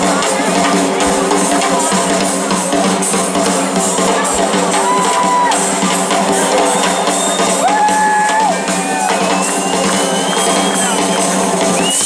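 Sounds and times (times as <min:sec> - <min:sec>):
drum kit playing: 0:00.0 - 0:12.0
rock band playing: 0:00.0 - 0:12.0
sliding lead guitar notes: 0:04.2 - 0:09.6.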